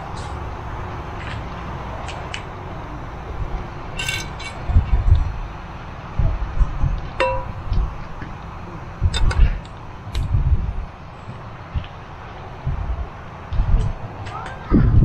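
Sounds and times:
cookware clinking: 0:07.2 - 0:07.6.

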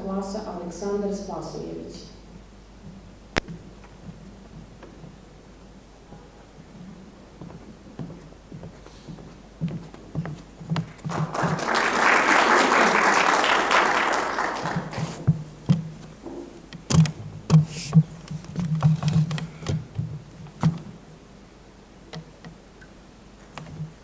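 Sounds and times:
footsteps on wooden stage: 0:02.8 - 0:05.4, 0:06.0 - 0:11.6, 0:14.6 - 0:20.9
audience applauding: 0:11.0 - 0:15.3.

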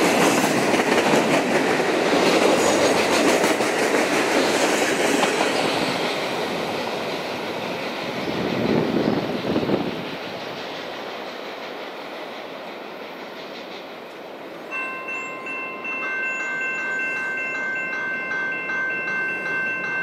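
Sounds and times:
freight train rumbling: 0:00.0 - 0:20.0
crossing warning bell ringing: 0:14.6 - 0:20.0.

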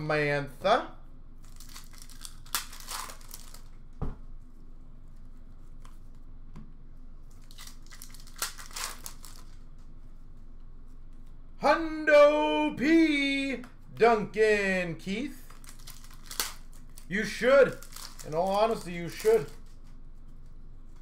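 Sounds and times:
card pack wrapper tearing: 0:01.4 - 0:03.7, 0:07.3 - 0:09.6, 0:15.4 - 0:19.8
cards being handled: 0:07.3 - 0:09.9, 0:15.4 - 0:21.0.

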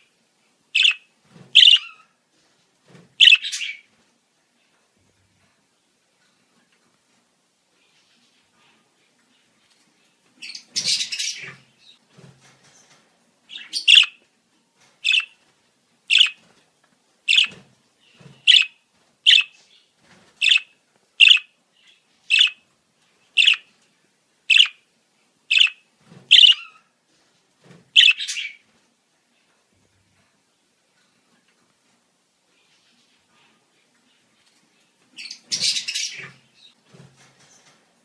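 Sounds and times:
budgerigar chattering and chirping: 0:00.8 - 0:01.0, 0:01.6 - 0:02.0, 0:03.2 - 0:03.8, 0:13.6 - 0:14.2, 0:15.1 - 0:15.3, 0:16.1 - 0:16.4, 0:17.3 - 0:17.5, 0:18.5 - 0:18.7, 0:19.3 - 0:19.5, 0:20.4 - 0:21.5, 0:22.3 - 0:22.6, 0:23.4 - 0:23.7, 0:24.5 - 0:24.8, 0:25.5 - 0:26.7, 0:28.0 - 0:28.6.

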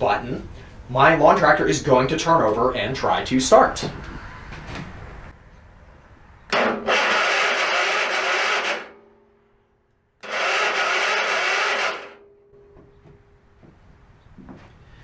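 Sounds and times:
starter cranking engine: 0:06.5 - 0:09.0, 0:10.2 - 0:12.2.

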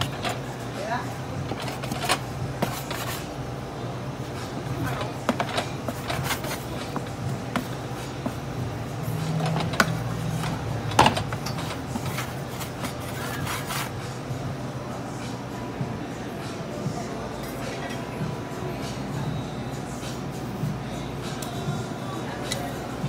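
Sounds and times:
dough rubbing and scraping: 0:00.0 - 0:03.4, 0:04.8 - 0:08.5, 0:09.2 - 0:14.2.

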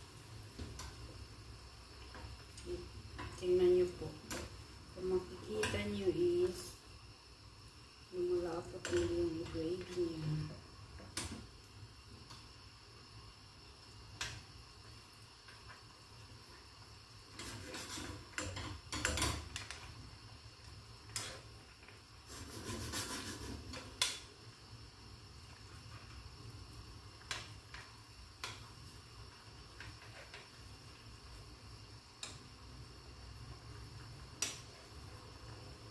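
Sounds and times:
metal spoon scraping frying pan: 0:17.4 - 0:19.4.

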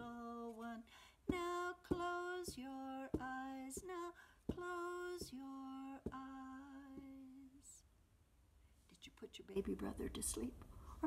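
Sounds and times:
woman singing slow lullaby: 0:00.0 - 0:07.8.

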